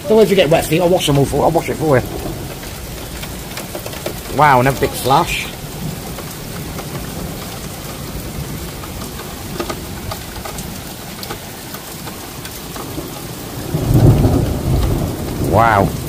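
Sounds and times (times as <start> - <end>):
heavy rain: 0.0 - 16.0
raindrops ticking on surfaces: 0.0 - 16.0
thunder rumble: 0.0 - 16.0.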